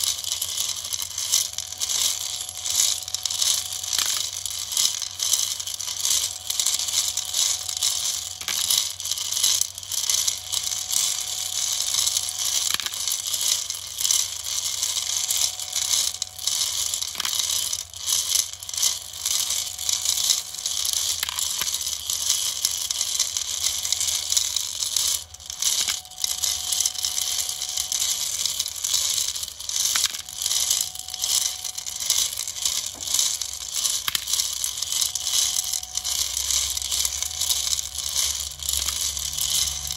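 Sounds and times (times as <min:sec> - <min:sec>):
metal nuts rattling in drum: 0:00.0 - 0:39.9
stepper motor whine: 0:00.0 - 0:39.9.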